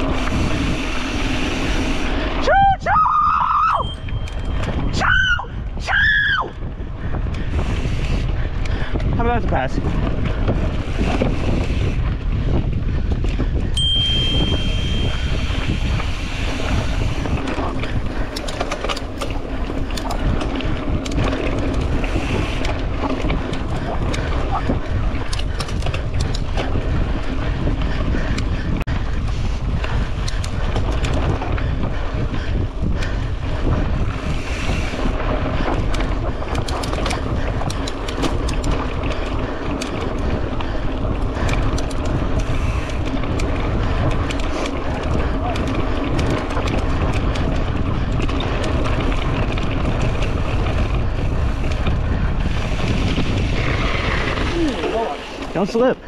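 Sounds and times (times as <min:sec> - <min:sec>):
wind buffeting microphone: 0:00.0 - 0:56.0
bike knocks and rattles: 0:12.3 - 0:55.8
tyres rumbling on dirt: 0:14.4 - 0:56.0.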